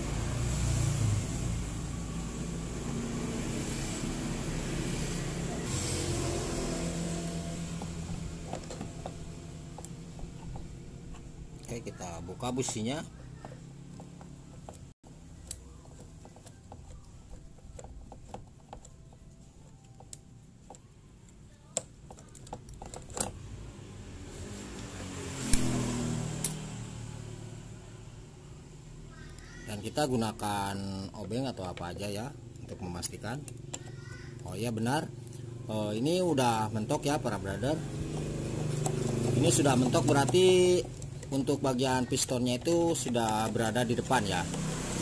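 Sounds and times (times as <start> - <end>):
hand tools clicking: 37.6 - 45.0.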